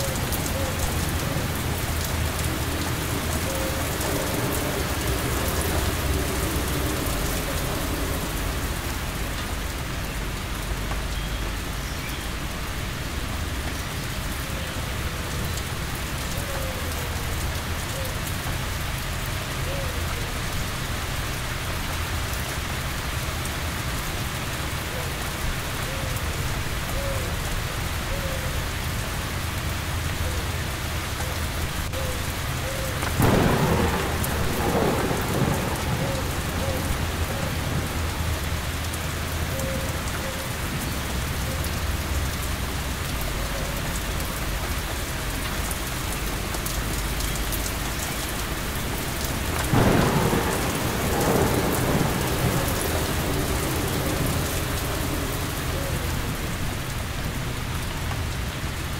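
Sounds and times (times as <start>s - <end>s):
heavy rain falling: 0.0s - 58.9s
thunder peals: 33.0s - 38.9s, 48.6s - 57.6s.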